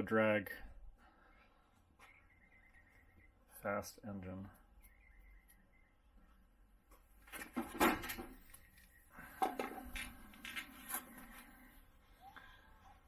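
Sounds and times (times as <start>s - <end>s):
knocks and clatter: 7.3s - 8.4s.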